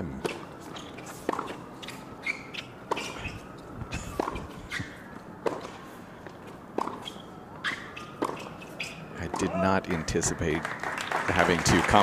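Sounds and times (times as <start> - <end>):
tennis racquet hitting ball: 0.2 - 5.8, 6.7 - 9.6.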